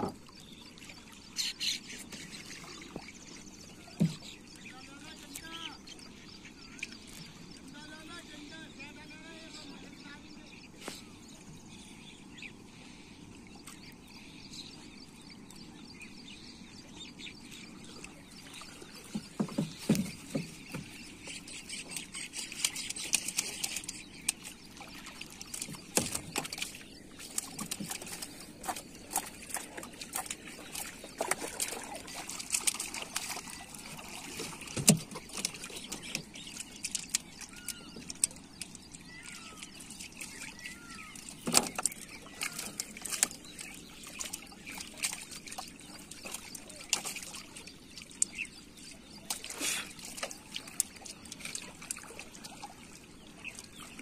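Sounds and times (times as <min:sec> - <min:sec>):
water trickling and splashing: 0:00.0 - 0:54.0
fishing line hauled in: 0:18.9 - 0:40.6.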